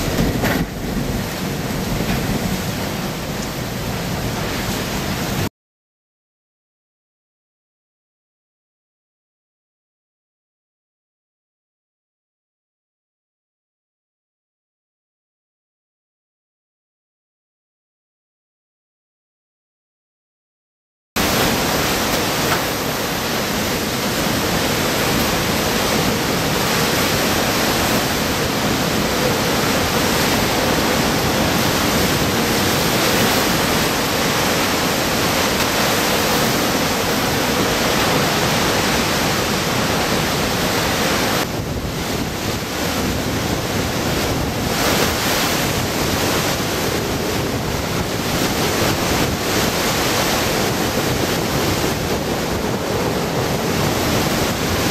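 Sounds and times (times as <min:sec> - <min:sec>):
driving rain: 0:00.0 - 0:05.5, 0:21.2 - 0:54.9
strong wind: 0:00.0 - 0:05.5, 0:21.2 - 0:54.9.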